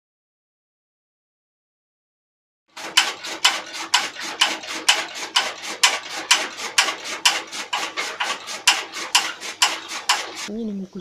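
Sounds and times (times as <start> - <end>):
steady motor hum: 2.7 - 10.5
chaff cutter knives crunching stalks: 2.8 - 10.5.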